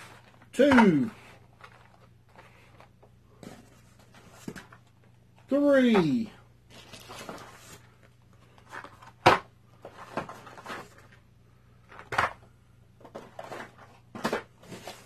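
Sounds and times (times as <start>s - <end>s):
cardboard rustling and scraping: 0.0s - 5.0s, 6.7s - 11.2s, 13.0s - 15.0s.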